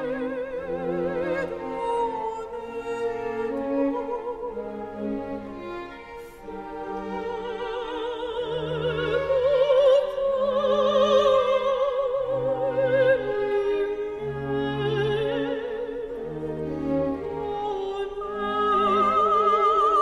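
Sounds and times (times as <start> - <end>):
sustained strings: 0.0 - 20.0
operatic high voice singing: 6.4 - 20.0.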